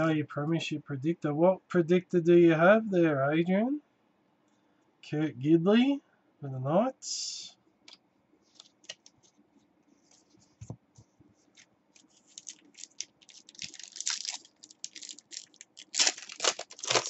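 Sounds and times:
trading cards rustling: 0:08.5 - 0:09.4, 0:11.4 - 0:17.0.

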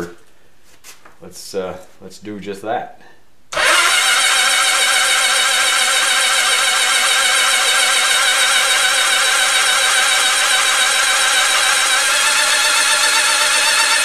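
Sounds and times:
starter motor cranking engine: 0:03.5 - 0:14.0.

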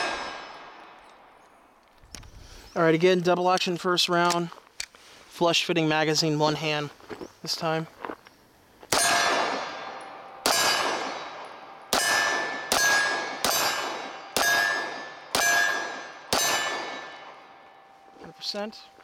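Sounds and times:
pistol shots: 0:00.0 - 0:01.4, 0:08.9 - 0:17.6
steel target ringing: 0:00.0 - 0:01.5, 0:08.9 - 0:18.9.

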